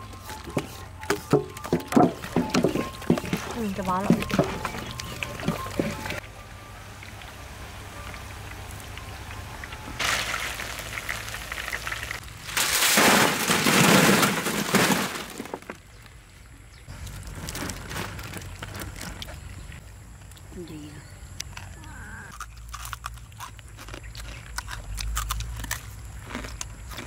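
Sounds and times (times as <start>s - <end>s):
wings sizzling in hot oil: 10.0s - 12.2s.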